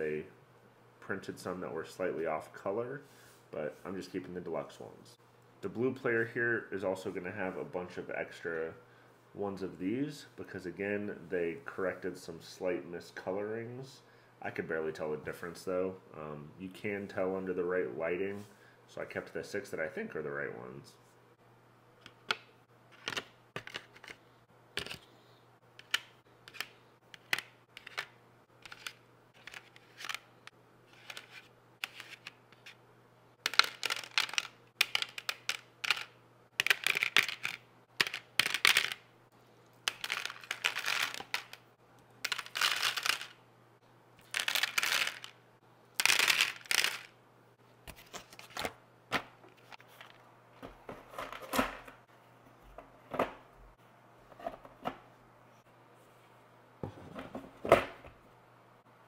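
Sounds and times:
game pieces clicking into plastic tray: 25.8s - 30.2s, 33.5s - 39.0s, 42.2s - 43.4s, 44.4s - 45.3s, 46.0s - 47.1s
game pieces clattering: 33.5s - 39.0s, 39.9s - 41.6s, 42.2s - 43.4s, 44.2s - 45.3s, 46.0s - 47.1s.

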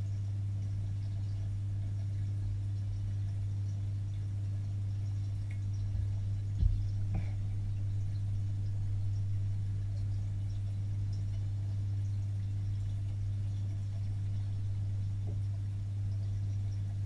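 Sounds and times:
underwater low hum: 0.0s - 17.0s.

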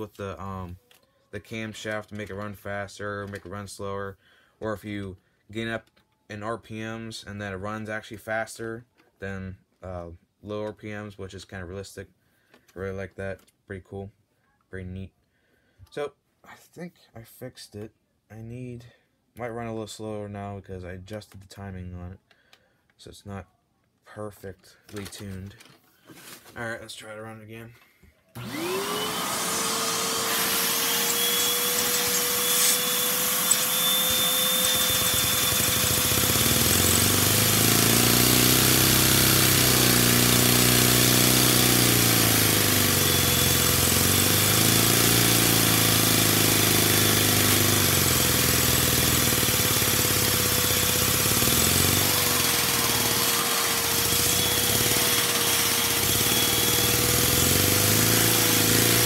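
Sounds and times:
vacuum high whine: 28.4s - 36.1s
toy engine revving: 28.4s - 59.0s.

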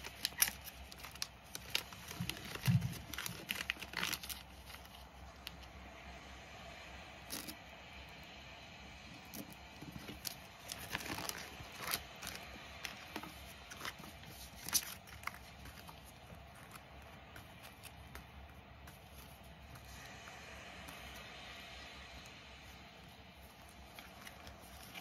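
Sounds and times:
binder page turning: 0.0s - 5.6s, 9.3s - 21.3s, 23.4s - 25.0s
plastic sleeves crinkling: 0.0s - 5.7s, 9.2s - 21.4s, 23.0s - 25.0s.

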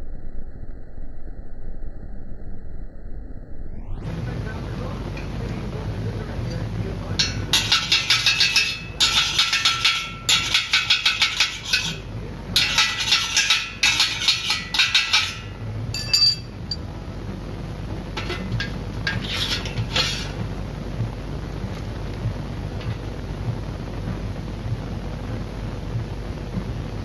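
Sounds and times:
welding crackle: 6.4s - 27.0s.

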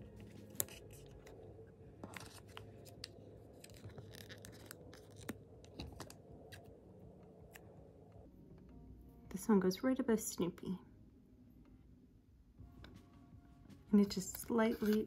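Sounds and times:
soft paper rustling: 0.0s - 6.7s.

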